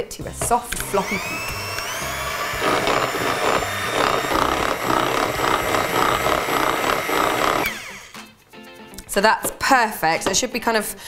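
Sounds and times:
electric hand mixer whining: 0:00.7 - 0:08.2.

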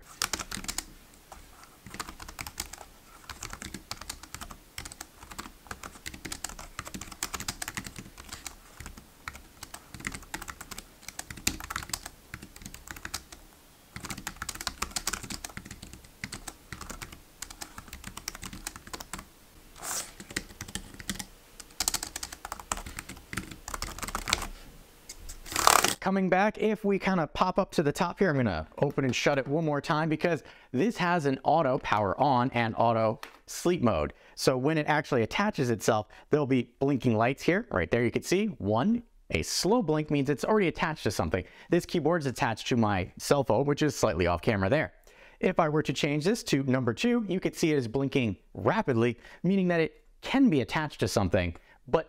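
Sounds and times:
keyboard typing clicks: 0:14.0 - 0:19.3, 0:20.2 - 0:24.5.

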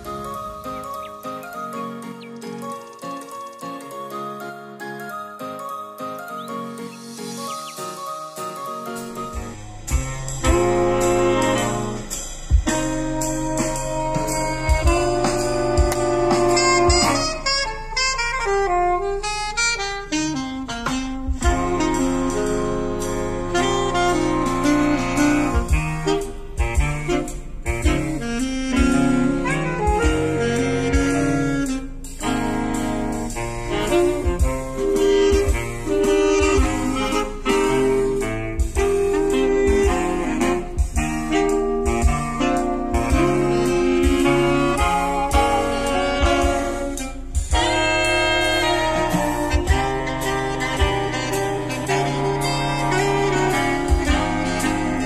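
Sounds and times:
saxophone jazz instrumental: 0:00.0 - 0:55.0
deep bass hits: 0:09.2 - 0:18.7, 0:20.8 - 0:55.0.

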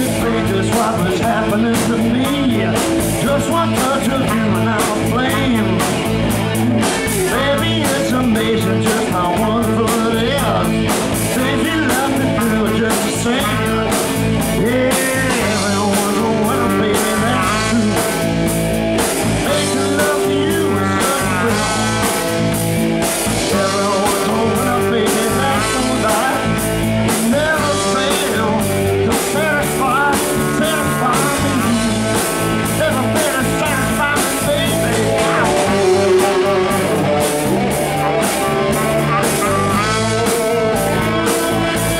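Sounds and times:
drum kit beat: 0:00.0 - 0:41.9
electric guitars: 0:00.0 - 0:41.9
man singing: 0:00.0 - 0:41.9
saxophone: 0:13.3 - 0:18.6, 0:19.4 - 0:26.8, 0:30.0 - 0:41.9.

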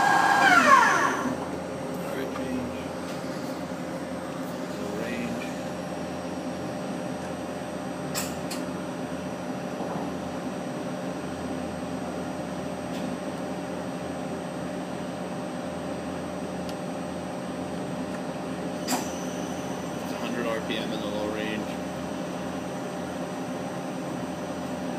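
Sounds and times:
lathe humming: 0:00.0 - 0:06.0.

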